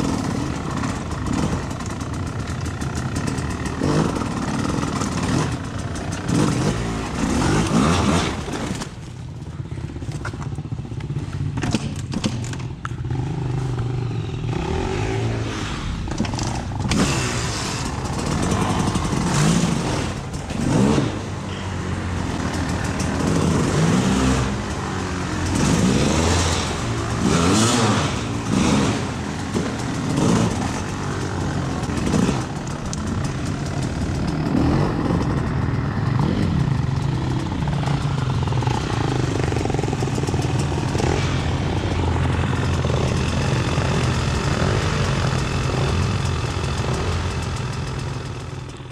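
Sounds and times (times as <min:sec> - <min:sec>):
vehicle engine revving: 0:13.1 - 0:35.5.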